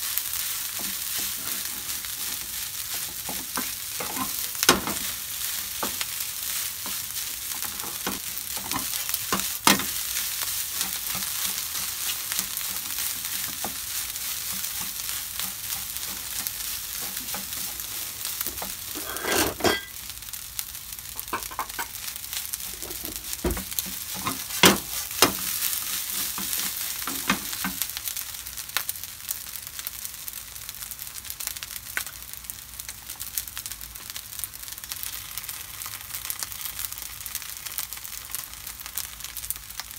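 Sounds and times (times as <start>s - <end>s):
food sizzling in a frying pan: 0.0s - 39.9s
wooden spatula scraping a pan: 0.6s - 19.9s, 22.6s - 27.8s.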